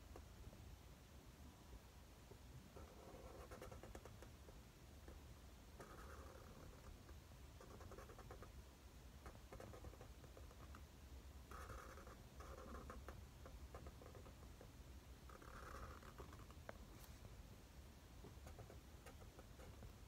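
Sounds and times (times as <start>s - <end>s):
marker scratching on paper: 2.8s - 4.3s, 5.8s - 7.0s, 7.6s - 8.5s, 9.2s - 10.8s, 11.5s - 14.7s, 15.3s - 17.3s, 18.2s - 20.0s.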